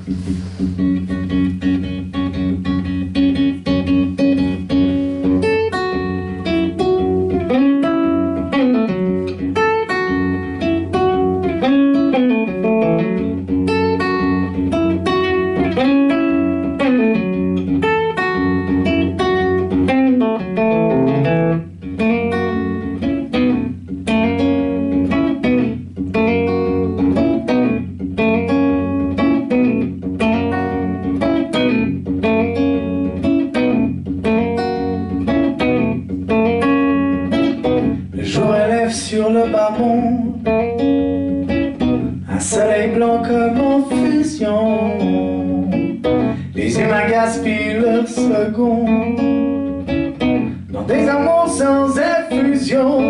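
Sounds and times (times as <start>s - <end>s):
acoustic guitar playing blues: 0.0s - 53.0s.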